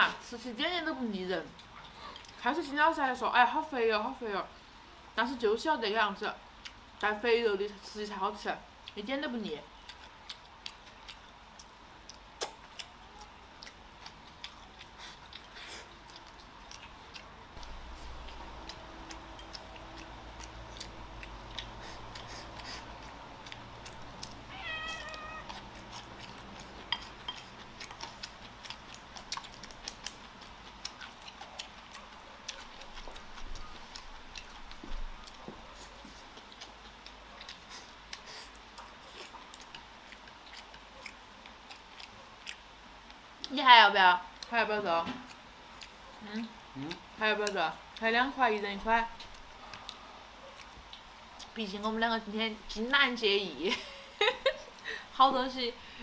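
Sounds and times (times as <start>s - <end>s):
eating sounds: 1.1s - 2.5s, 8.2s - 52.0s
cat meowing: 24.4s - 25.6s.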